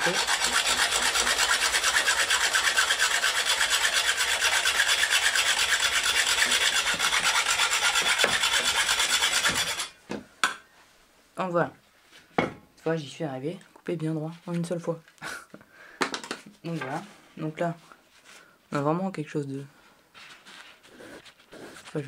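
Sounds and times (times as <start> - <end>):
hacksaw cutting bamboo: 0.0 - 10.0.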